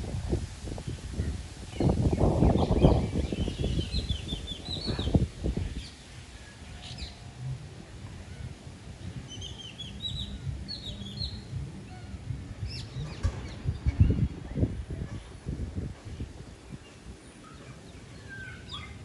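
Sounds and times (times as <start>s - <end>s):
wind rumbling on microphone: 0.0s - 19.0s.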